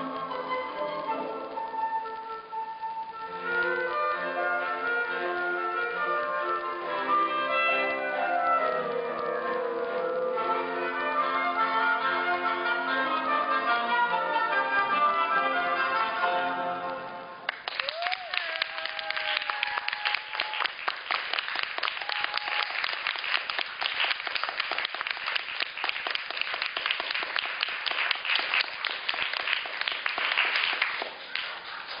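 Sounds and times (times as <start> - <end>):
audience applauding: 17.5 - 32.0.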